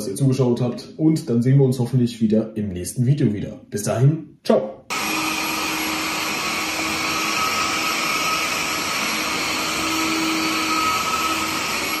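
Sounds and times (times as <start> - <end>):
suction fan rush of air: 4.9 - 12.0.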